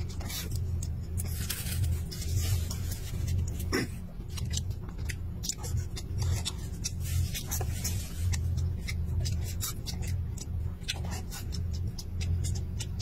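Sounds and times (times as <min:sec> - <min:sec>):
low pulsing rumble: 0:00.0 - 0:13.0
man chewing food: 0:00.0 - 0:13.0.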